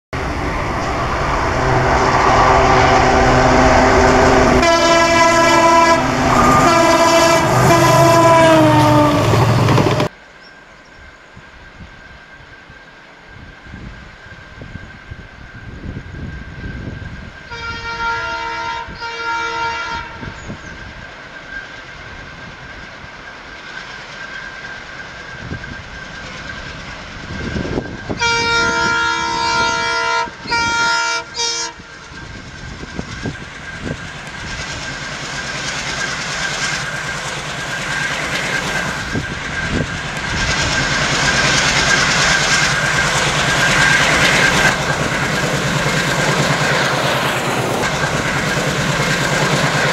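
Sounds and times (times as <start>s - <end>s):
high whine: 0.1s - 8.5s, 31.2s - 49.9s
locomotive horn: 1.4s - 10.0s, 17.5s - 20.4s, 28.1s - 32.0s
train wheels clickety-clack: 8.5s - 10.2s, 31.9s - 49.9s.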